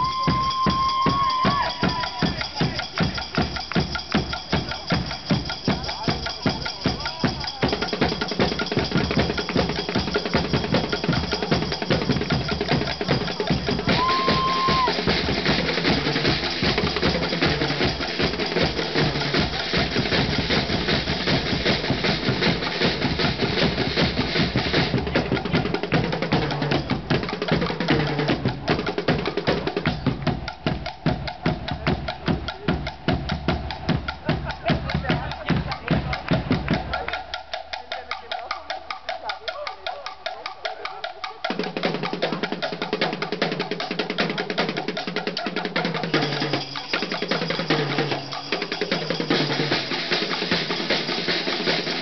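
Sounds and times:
bass drums: 0:00.0 - 0:38.1
drum kit with cymbals: 0:00.0 - 0:52.0
marching snare drums: 0:00.0 - 0:52.0.

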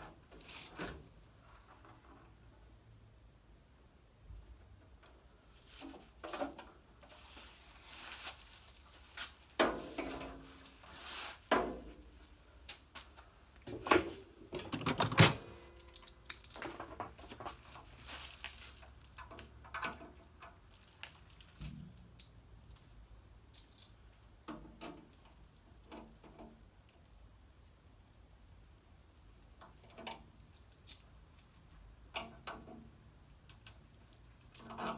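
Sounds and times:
metal drawer clanks and clicks: 0:14.0 - 0:16.0.

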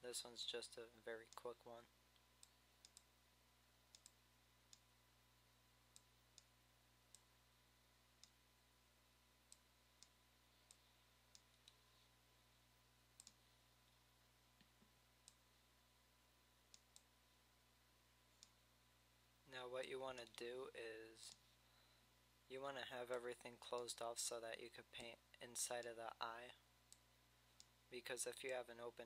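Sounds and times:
faint room hiss: 0:00.0 - 0:29.0
computer mouse clicking: 0:02.1 - 0:03.1, 0:03.9 - 0:04.9, 0:05.9 - 0:07.4, 0:09.4 - 0:12.1, 0:13.2 - 0:13.4.

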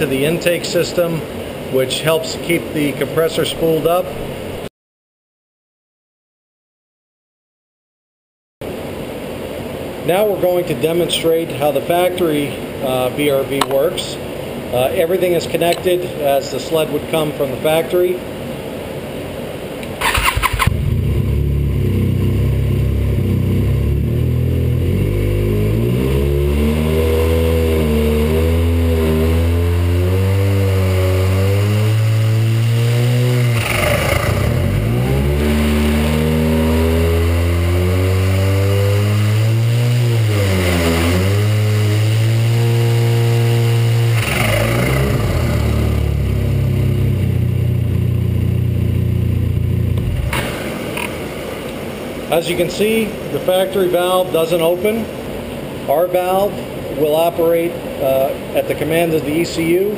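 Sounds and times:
rush of noise on let-off: 0:19.8 - 0:52.4
snowmobile engine revving: 0:20.0 - 0:51.1.

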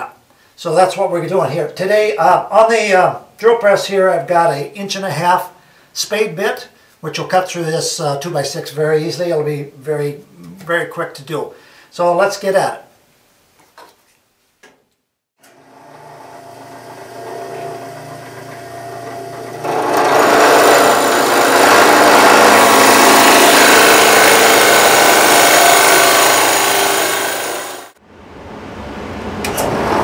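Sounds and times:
drill press motor running: 0:15.4 - 0:28.0
drill bit boring into wood: 0:15.5 - 0:27.9.

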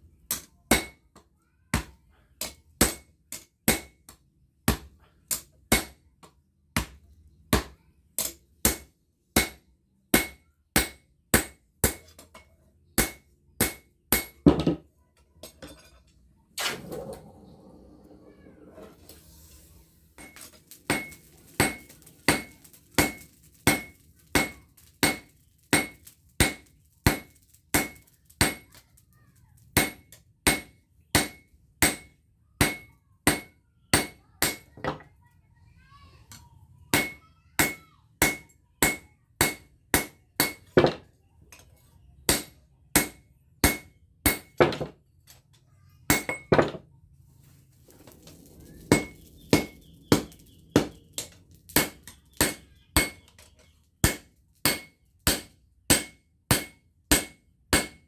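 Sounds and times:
hammer striking hot steel: 0:00.2 - 0:14.6, 0:20.1 - 0:34.9, 0:36.3 - 0:41.0, 0:42.3 - 0:44.9, 0:46.1 - 0:46.8, 0:47.9 - 0:58.0
anvil ringing: 0:48.8 - 0:53.3.

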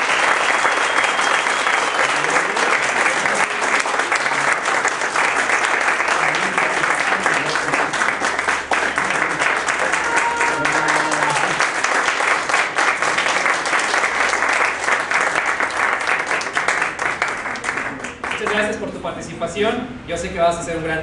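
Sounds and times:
audience applauding: 0:00.0 - 0:18.8.

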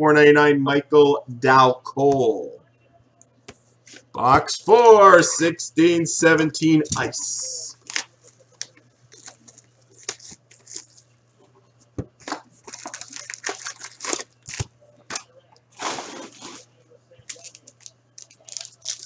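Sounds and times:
foil packaging crinkling: 0:07.7 - 0:11.1, 0:12.2 - 0:16.7, 0:17.3 - 0:19.0
packaging ripping: 0:07.8 - 0:11.0, 0:12.2 - 0:15.2, 0:17.3 - 0:19.0.

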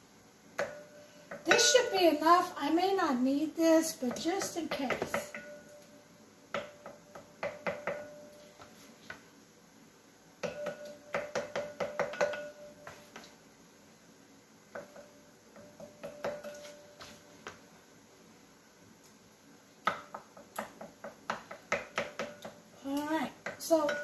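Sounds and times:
glass ringing: 0:05.3 - 0:05.9, 0:10.4 - 0:11.0, 0:11.9 - 0:12.9.

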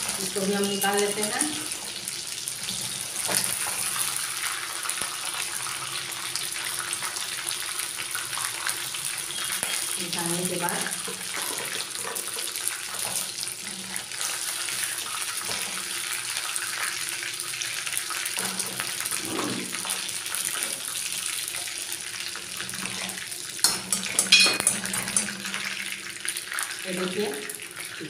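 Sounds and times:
chicken sizzling in hot oil: 0:00.0 - 0:28.0
skimmer clinking against pan: 0:23.7 - 0:25.5.

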